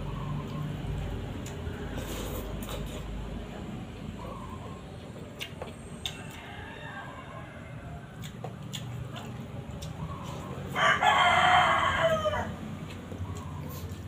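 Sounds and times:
rooster crowing: 0:06.1 - 0:08.3, 0:10.7 - 0:12.6.

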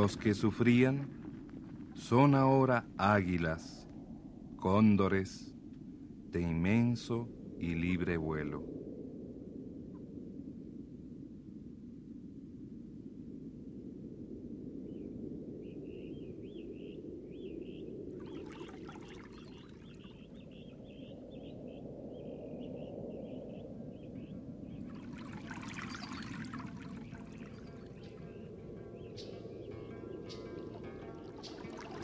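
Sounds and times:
small bird chirping: 0:14.9 - 0:32.0
water rushing: 0:18.1 - 0:20.2, 0:24.8 - 0:28.8, 0:30.0 - 0:32.0
water splashing: 0:18.1 - 0:20.2, 0:24.8 - 0:28.4, 0:30.2 - 0:32.0.

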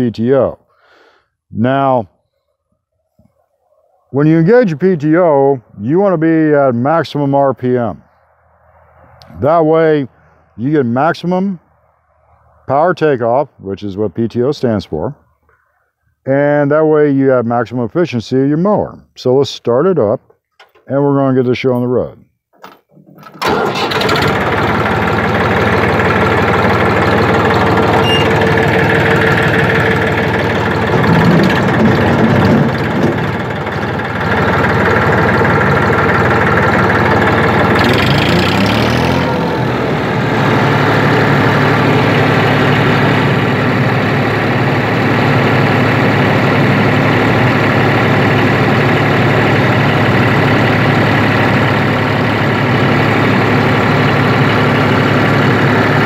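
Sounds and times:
tractor diesel engine running: 0:00.0 - 0:00.8, 0:04.1 - 0:14.8, 0:23.0 - 0:56.0.

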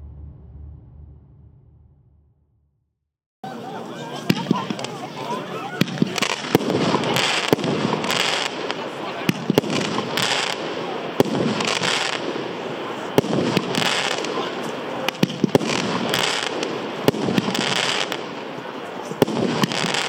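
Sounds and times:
firework crackling bursts: 0:04.1 - 0:20.0
firework launch pops: 0:04.3 - 0:05.1, 0:05.8 - 0:10.6, 0:13.1 - 0:18.4, 0:19.1 - 0:20.0.

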